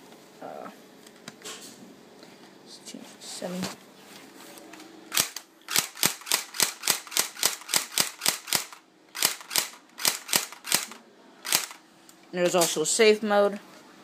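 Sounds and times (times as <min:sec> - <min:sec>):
airsoft rifle snapping shots: 0:05.1 - 0:11.8.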